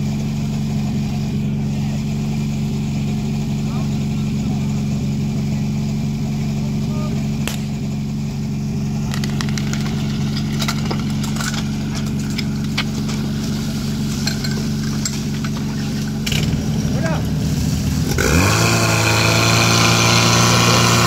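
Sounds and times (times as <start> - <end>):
pump engine idling: 0.0 - 21.0
metal hose couplings clanking: 9.1 - 16.5.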